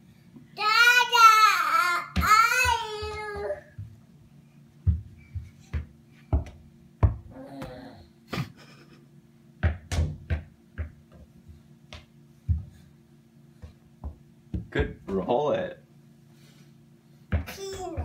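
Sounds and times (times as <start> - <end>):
child vocal sound: 0.6 - 3.7, 7.3 - 8.2
soft thumps and knocks: 4.8 - 7.8, 13.6 - 15.2.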